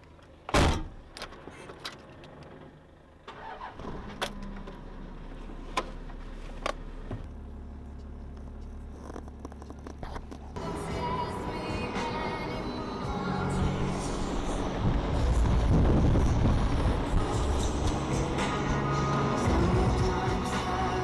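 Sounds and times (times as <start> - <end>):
car engine starting and idling: 0.0 - 21.0.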